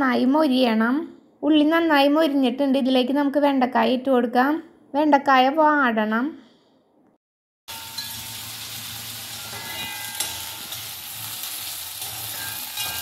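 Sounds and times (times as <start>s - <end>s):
vegetables sizzling in oil: 7.7s - 13.0s.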